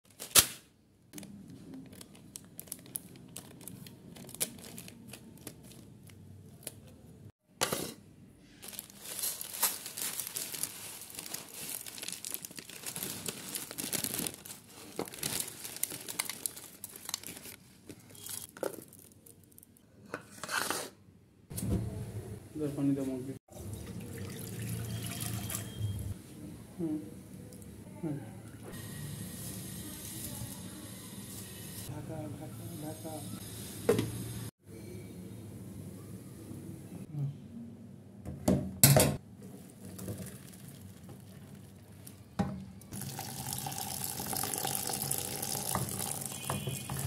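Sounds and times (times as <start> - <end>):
plastic packet crinkling: 1.2 - 6.9, 8.6 - 19.8.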